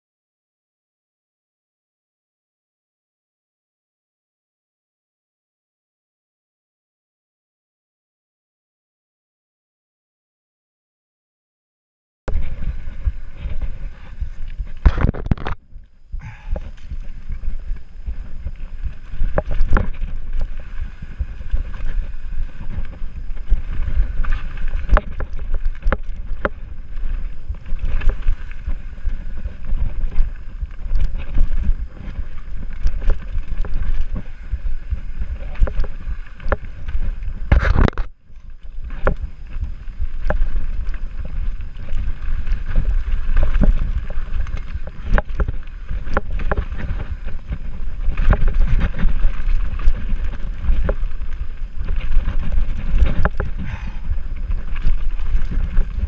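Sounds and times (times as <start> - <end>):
mountain bike rattling on dirt trail: 12.3 - 56.0
wind buffeting microphone: 12.3 - 56.0.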